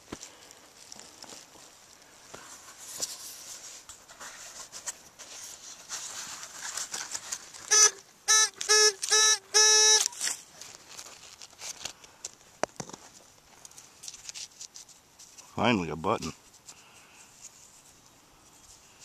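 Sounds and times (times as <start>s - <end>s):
metal detector beeping: 7.7s - 10.3s.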